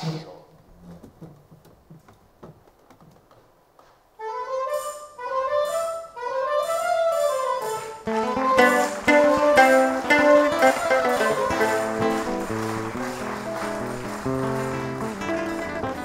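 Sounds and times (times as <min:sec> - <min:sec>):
theatre incidental music: 0:03.8 - 0:16.0.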